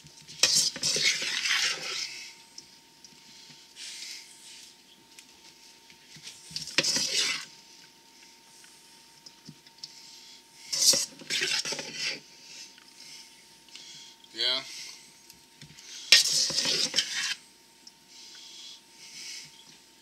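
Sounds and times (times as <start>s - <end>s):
spatula scraping steel bowl: 0.4s - 2.3s, 6.7s - 7.5s, 10.7s - 12.3s, 16.1s - 17.4s.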